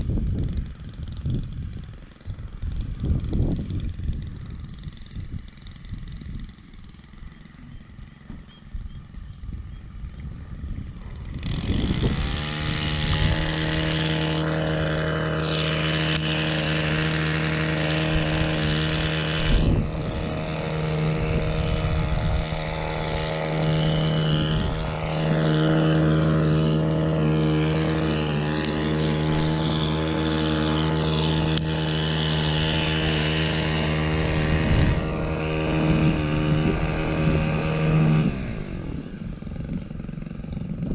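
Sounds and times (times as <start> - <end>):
engine droning: 0.0 - 40.9.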